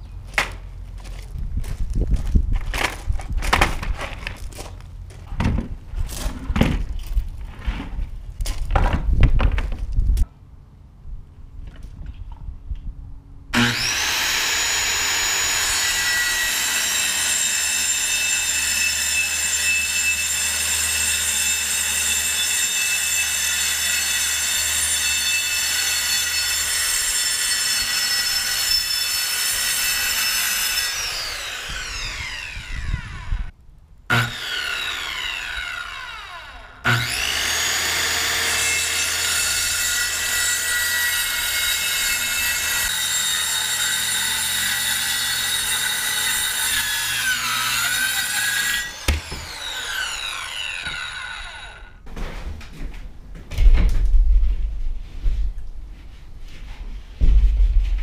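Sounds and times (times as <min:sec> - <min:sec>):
circular saw cutting wood: 0:13.6 - 0:33.5, 0:34.1 - 0:52.0.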